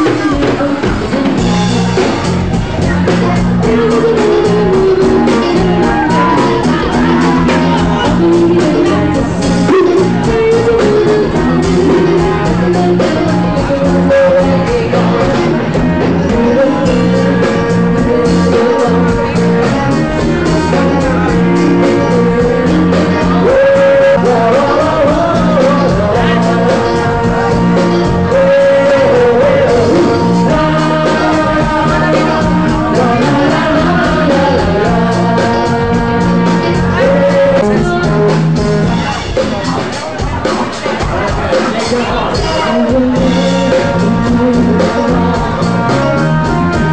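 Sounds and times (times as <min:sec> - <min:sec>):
person singing: 0:00.0 - 0:46.9
rock band playing: 0:00.0 - 0:46.9.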